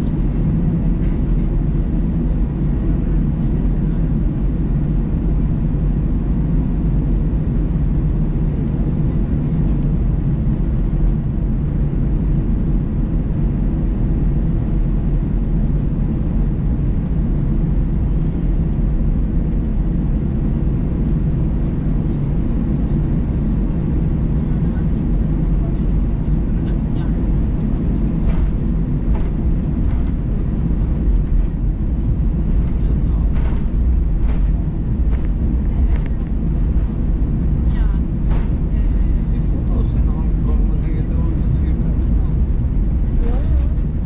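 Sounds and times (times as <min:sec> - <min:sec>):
jet engines rumbling in cabin: 0:00.0 - 0:44.0.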